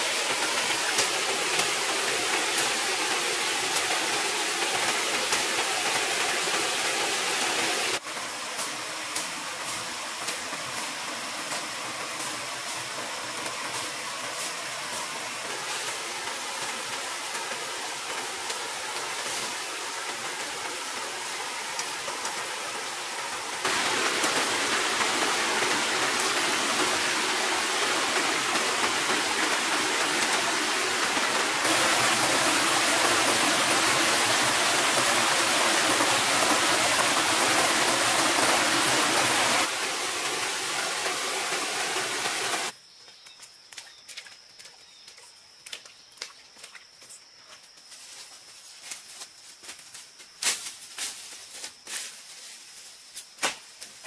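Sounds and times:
stream rushing over rocks: 0:00.0 - 0:42.8.

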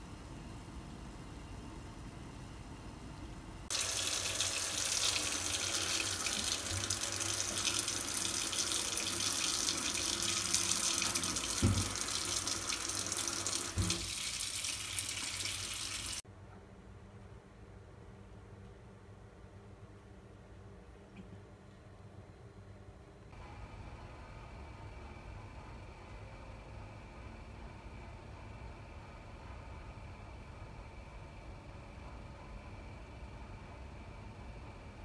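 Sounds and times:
tap water running into sink: 0:03.7 - 0:16.2.

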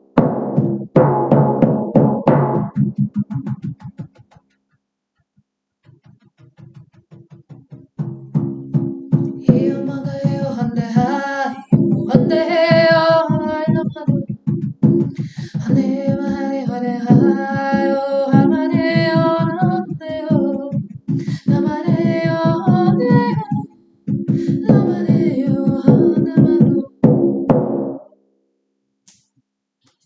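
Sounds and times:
frame drum beat: 0:00.0 - 0:04.4, 0:06.0 - 0:28.0
woman singing wordless vocals: 0:09.4 - 0:14.4, 0:15.0 - 0:23.7, 0:24.3 - 0:27.0.

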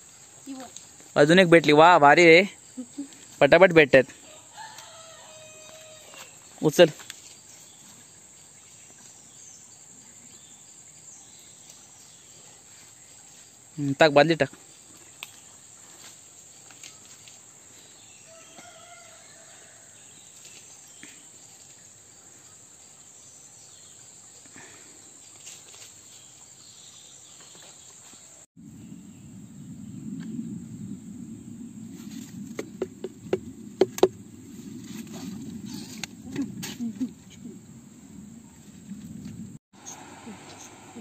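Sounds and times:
insects droning: 0:00.0 - 0:41.0
low rumbling noise: 0:28.6 - 0:36.6.

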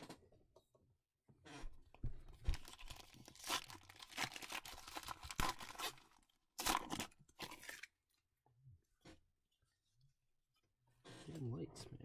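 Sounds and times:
foil wrapper tearing and crinkling: 0:02.5 - 0:07.9.

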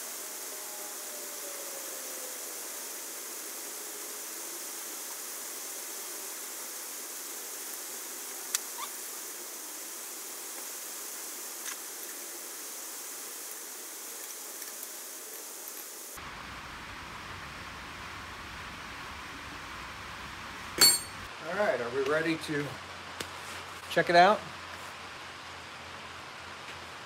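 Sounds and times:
rain hissing: 0:00.0 - 0:27.0.

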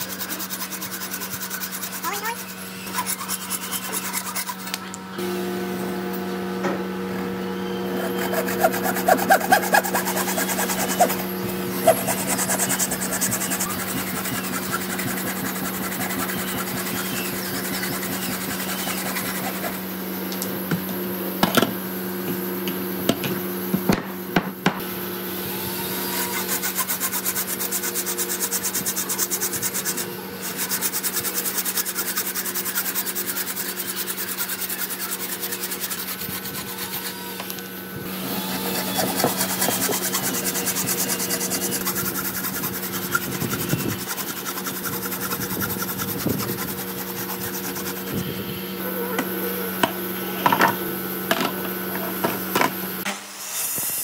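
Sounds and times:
hand saw cutting wood: 0:00.0 - 0:04.9, 0:08.0 - 0:19.8, 0:26.1 - 0:48.3
steady low hum: 0:00.0 - 0:53.1.

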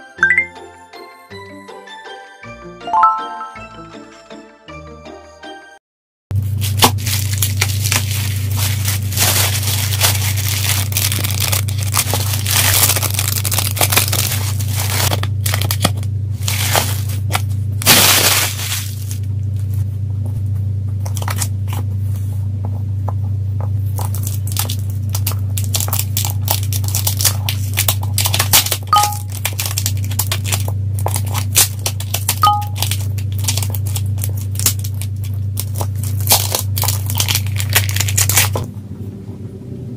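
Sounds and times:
plastic wrapping crinkling and tearing: 0:06.4 - 0:19.3, 0:21.0 - 0:21.5, 0:23.9 - 0:38.6
steady low hum: 0:06.4 - 0:39.9.

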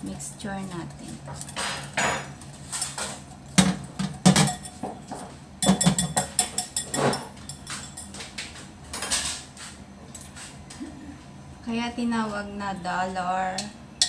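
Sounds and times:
whisk clinking against glass bowl: 0:05.6 - 0:08.1.

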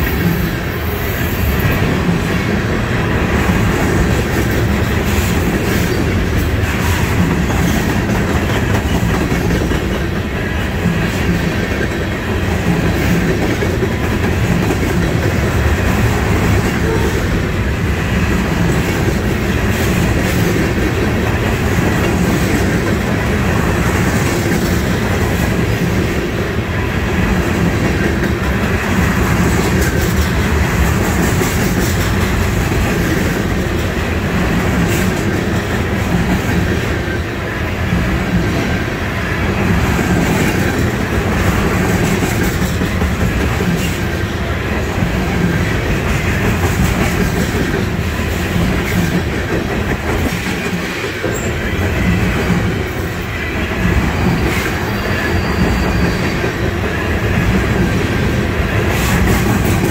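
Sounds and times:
steel wheels rumbling on rail: 0:00.0 - 0:59.9
wheels clacking over rail joints: 0:18.4 - 0:38.8, 0:39.4 - 0:59.9.

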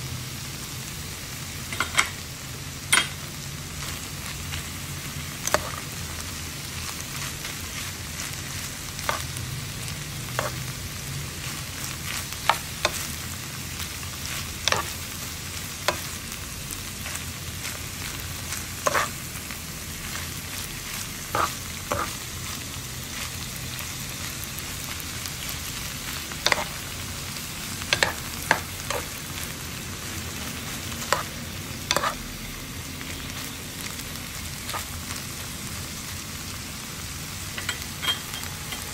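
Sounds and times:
food sizzling in a frying pan: 0:00.0 - 0:38.9
metal spoon scraping a pan: 0:10.3 - 0:10.7, 0:14.6 - 0:15.0, 0:18.8 - 0:19.2, 0:21.3 - 0:22.2, 0:26.4 - 0:26.8, 0:27.9 - 0:29.2, 0:31.9 - 0:32.2.

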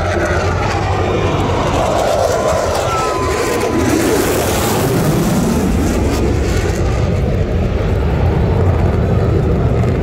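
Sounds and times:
fighter jet passing overhead: 0:00.0 - 0:10.0.

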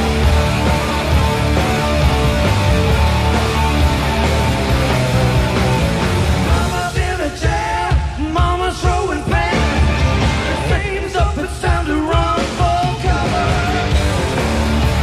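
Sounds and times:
rock band playing: 0:00.0 - 0:15.0
man singing: 0:06.4 - 0:14.2.

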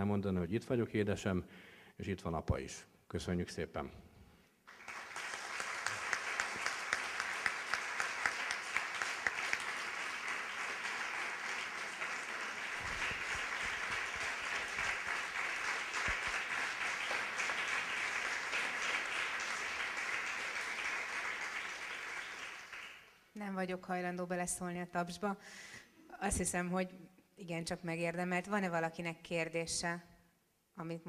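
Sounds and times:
close single claps: 0:04.7 - 0:23.1
audience applauding: 0:04.7 - 0:23.2.

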